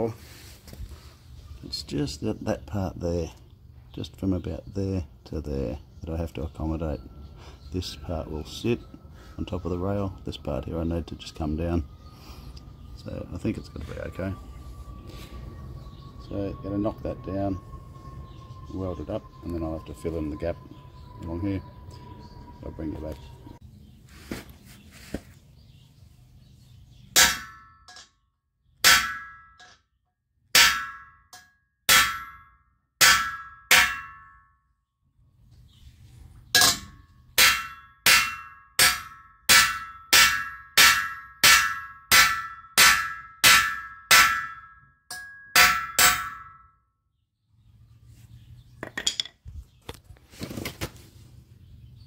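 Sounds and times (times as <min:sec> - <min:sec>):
hammer striking steel: 0:27.2 - 0:28.1, 0:28.8 - 0:29.8, 0:30.5 - 0:34.5, 0:36.6 - 0:46.7.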